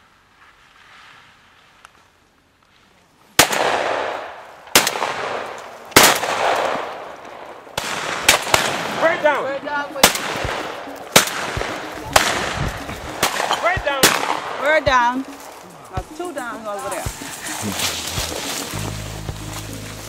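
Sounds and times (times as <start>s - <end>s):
shotgun shots with echo: 3.4s - 7.2s, 7.8s - 14.9s.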